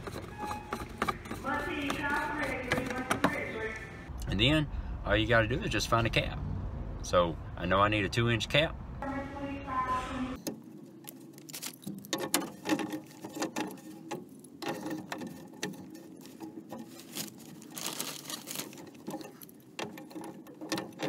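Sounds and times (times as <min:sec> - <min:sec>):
rustling on plastic sheeting: 0:11.0 - 0:20.9.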